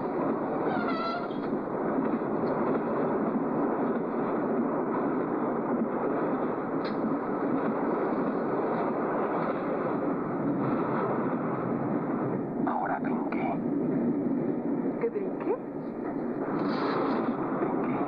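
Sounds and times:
steady rushing noise: 0:00.0 - 0:18.0.

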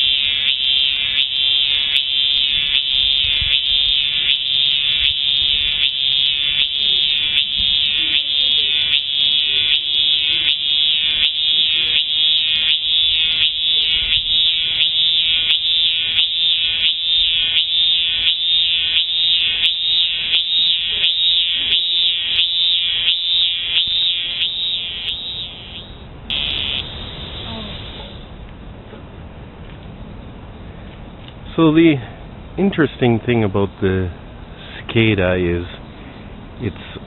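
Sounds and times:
cicada buzzing: 0:00.0 - 0:28.4.

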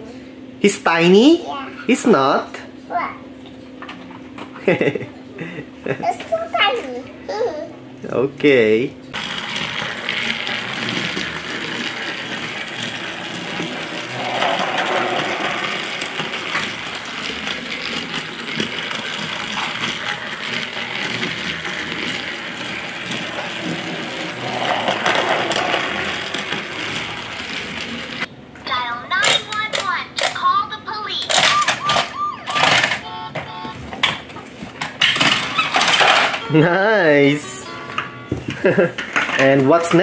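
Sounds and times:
wheels and gears rattling: 0:09.1 - 0:28.3, 0:34.1 - 0:36.8
toy train motor whir: 0:09.2 - 0:28.3, 0:35.0 - 0:36.5.

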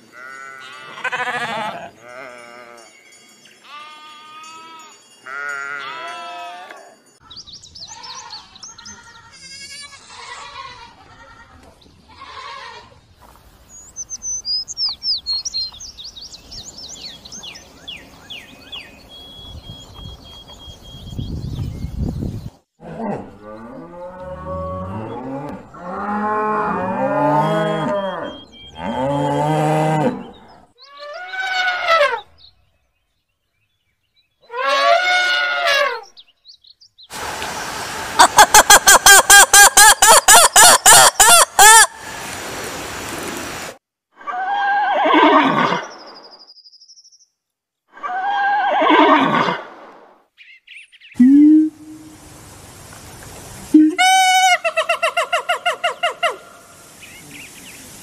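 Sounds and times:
cattle mooing: 0:22.8 - 0:30.3.

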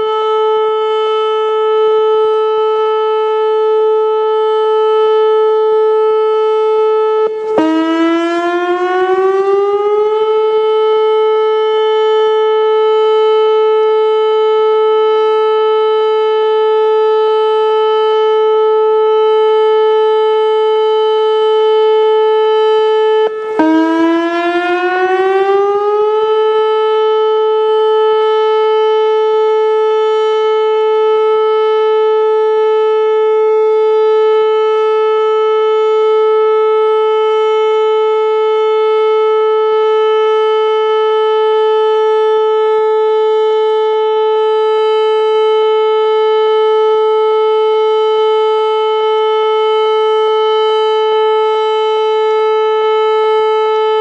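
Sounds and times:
outdoor warning siren steady tone: 0:00.0 - 0:54.0.

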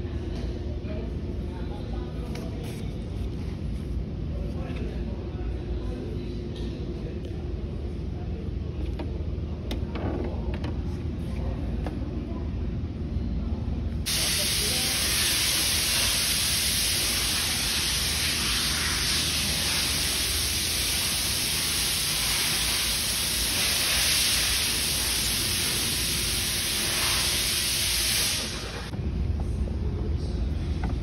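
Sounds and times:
steady hiss of rushing air: 0:14.1 - 0:28.9.

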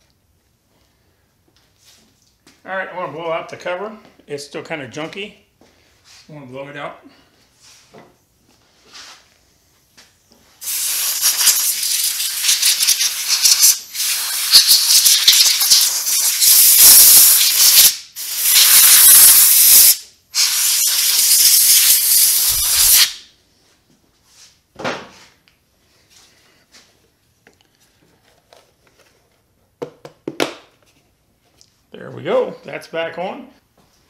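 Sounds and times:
compressed air blow gun hissing: 0:10.6 - 0:23.2.

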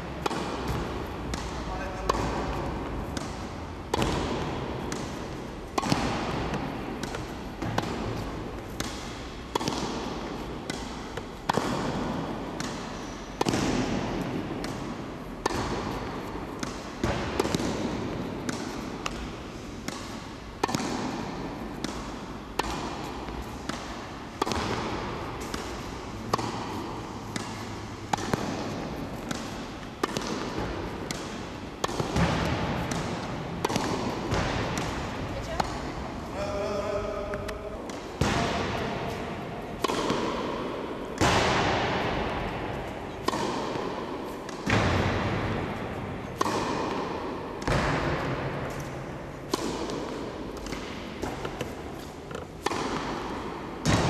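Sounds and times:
tennis racket hitting ball: 0:00.0 - 0:54.0
tennis ball bouncing: 0:00.1 - 0:36.5, 0:37.2 - 0:54.0.

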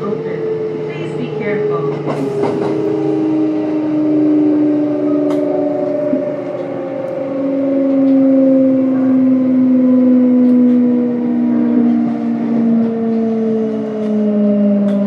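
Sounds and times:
train motors whining: 0:00.0 - 0:15.0
train running gear rumble: 0:00.0 - 0:15.0.

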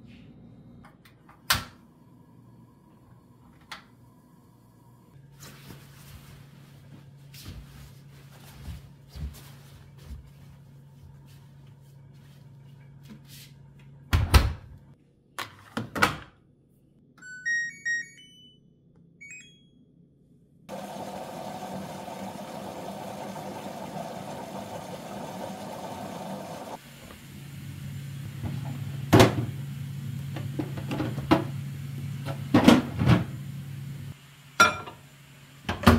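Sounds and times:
washing machine rushing: 0:20.7 - 0:35.9.

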